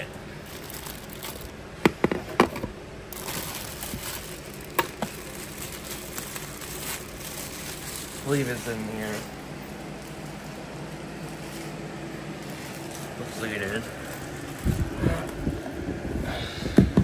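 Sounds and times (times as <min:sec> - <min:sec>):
rustling of items: 0:00.0 - 0:15.7.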